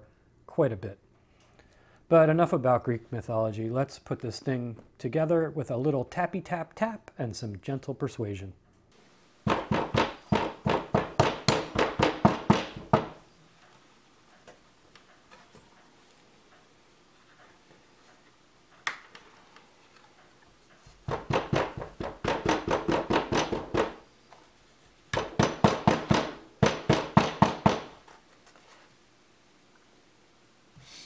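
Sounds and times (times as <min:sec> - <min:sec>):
hammer tapping plastic parts: 0:09.4 - 0:13.2, 0:21.0 - 0:24.0, 0:25.1 - 0:28.0.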